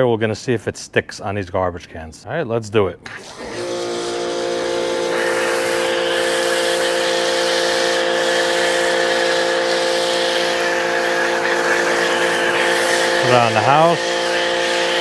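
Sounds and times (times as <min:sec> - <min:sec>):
pressure washer motor hum: 0:03.1 - 0:15.0
foam spraying hiss: 0:03.6 - 0:15.0.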